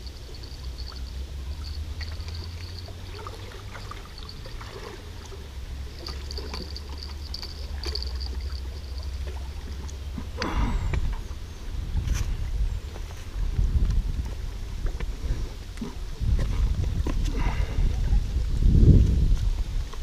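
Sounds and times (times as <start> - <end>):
high chirping: 0.0 - 4.6
water trickling: 0.0 - 10.6
wind rumble on microphone: 0.0 - 20.0.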